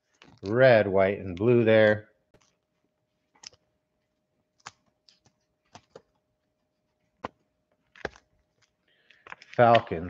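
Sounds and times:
trading cards clicking and tapping: 9.1 - 10.0.

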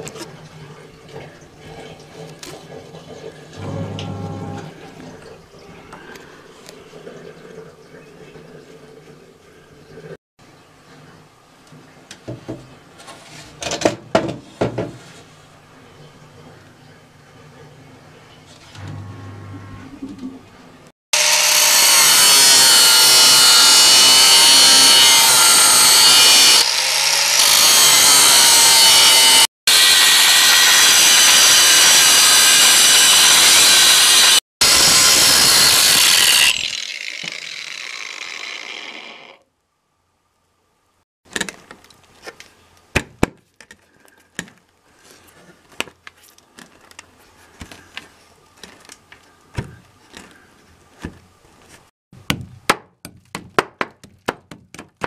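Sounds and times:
angle grinder cutting metal: 21.2 - 39.4
grinder winding down: 21.2 - 39.4.

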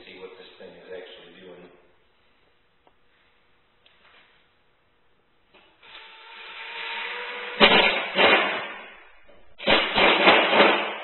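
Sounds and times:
harsh grinding bursts: 5.8 - 8.8.

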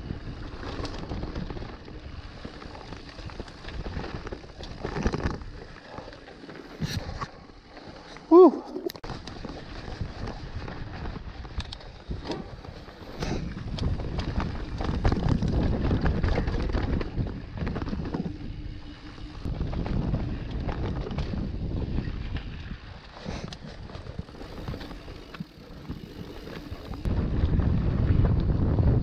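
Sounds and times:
mountain bike rumbling and rattling: 0.0 - 29.0
wind buffeting microphone: 9.0 - 29.0.

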